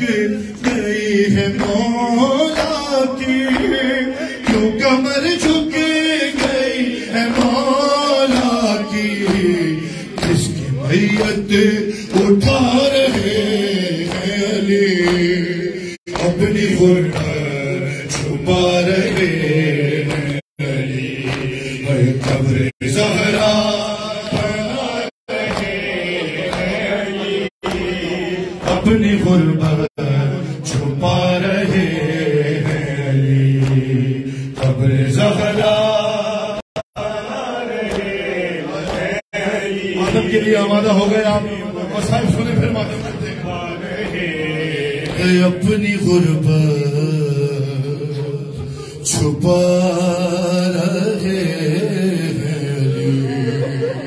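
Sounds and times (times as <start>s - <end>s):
men chanting a lament: 0.0s - 54.0s
hand slaps on chests: 2.5s - 15.5s, 16.1s - 20.4s, 21.0s - 24.8s, 25.4s - 27.0s, 27.6s - 28.9s, 31.7s - 35.7s, 37.7s - 39.2s, 43.8s - 44.4s.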